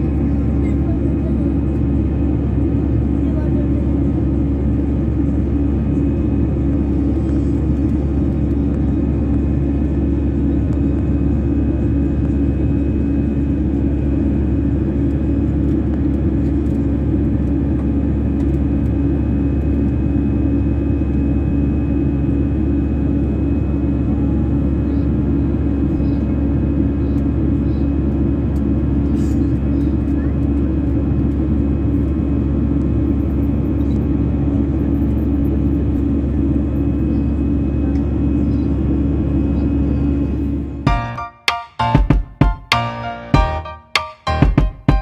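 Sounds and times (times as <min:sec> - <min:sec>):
jet engines droning in cabin: 0:00.0 - 0:45.0.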